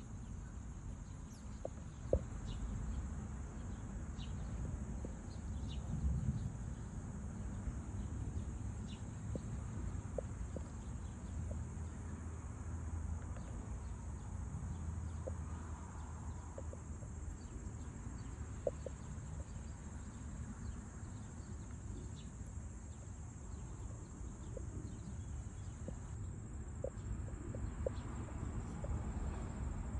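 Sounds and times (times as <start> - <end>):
faint ticks: 1.0 - 3.0, 3.6 - 6.4, 7.4 - 12.3, 12.9 - 29.7.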